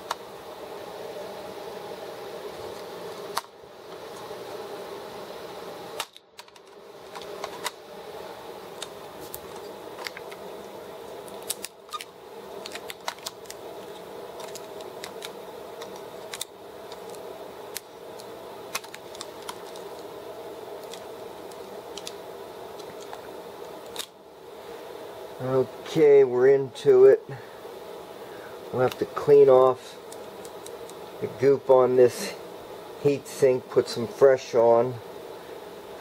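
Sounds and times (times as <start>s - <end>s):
steady background hum: 0.0s - 36.0s
laptop parts clicking and tapping: 6.0s - 7.8s, 11.4s - 17.2s.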